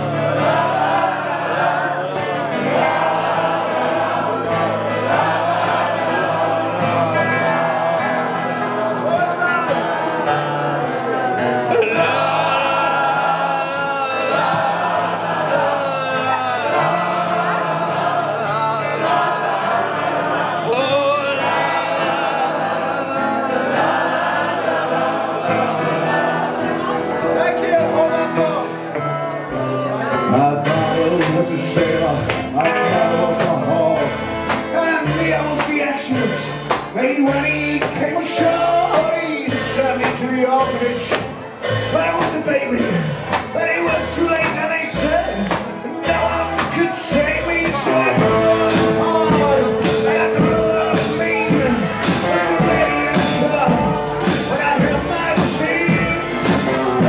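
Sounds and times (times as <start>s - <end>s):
person singing: 0.0s - 27.4s, 28.0s - 57.0s
accordion: 0.0s - 57.0s
drums on a steady beat: 30.6s - 57.0s.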